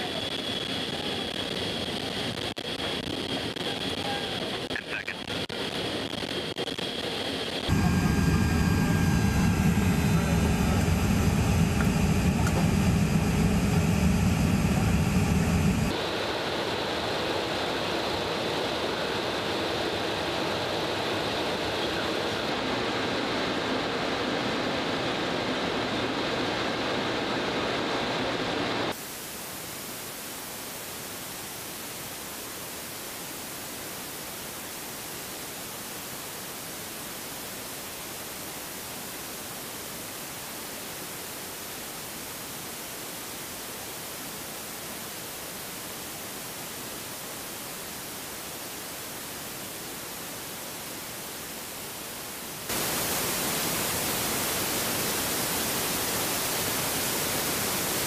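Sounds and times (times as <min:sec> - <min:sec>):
steady static hiss: 0:00.0 - 0:58.0.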